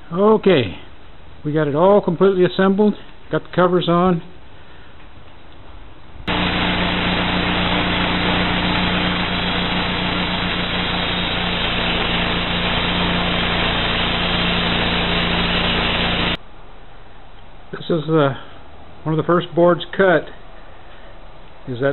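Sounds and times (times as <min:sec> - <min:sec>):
band saw blade cutting log: 0:06.3 - 0:16.4
small gasoline engine running: 0:06.3 - 0:16.4.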